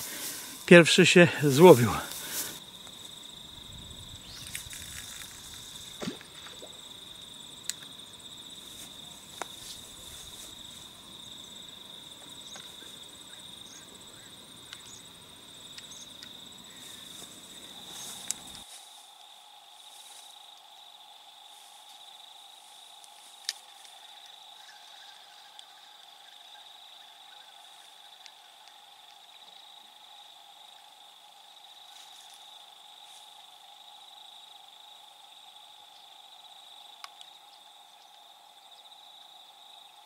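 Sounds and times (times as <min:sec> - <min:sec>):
insect chorus trilling: 0:00.0 - 0:40.0.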